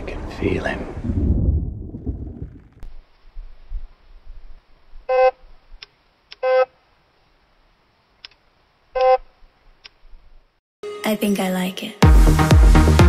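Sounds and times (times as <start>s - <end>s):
sharp clicks: 8.2s - 8.4s.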